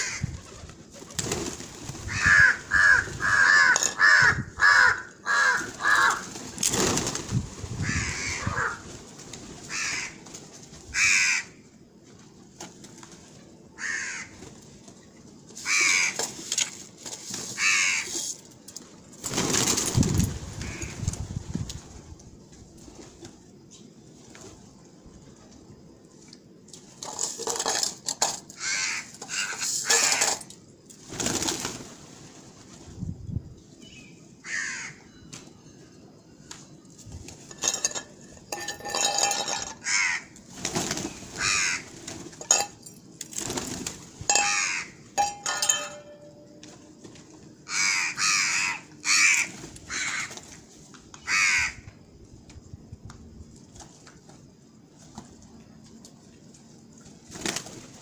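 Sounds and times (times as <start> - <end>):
crows cawing: 0.0 - 0.3, 2.1 - 6.3, 7.8 - 8.8, 9.7 - 10.2, 10.9 - 11.6, 13.8 - 14.4, 15.6 - 16.2, 17.6 - 18.2, 20.6 - 21.0, 28.6 - 30.4, 34.4 - 35.0, 39.8 - 40.4, 41.4 - 41.9, 44.3 - 45.0, 47.6 - 50.4, 51.2 - 51.9
pigeon wingbeats: 0.0 - 11.3, 19.2 - 22.0, 31.0 - 32.9, 38.8 - 42.6, 43.2 - 48.4, 57.0 - 58.0.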